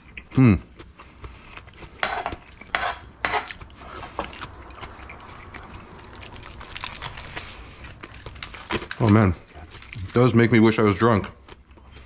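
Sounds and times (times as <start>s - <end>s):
aluminium foil crinkling: 4.1s - 11.2s.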